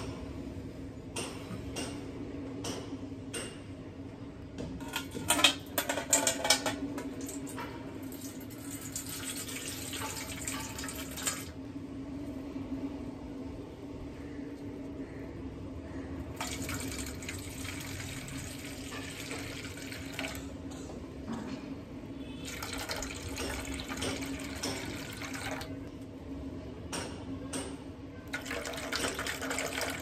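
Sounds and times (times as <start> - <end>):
liquid pouring into a metal pot: 7.2 - 11.5, 16.4 - 20.5, 22.4 - 25.8, 28.3 - 30.0.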